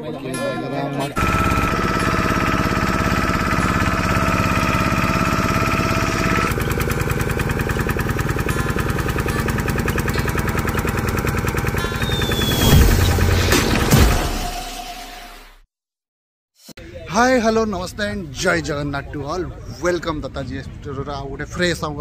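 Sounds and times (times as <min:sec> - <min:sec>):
motorboat engine running: 0:01.2 - 0:14.5.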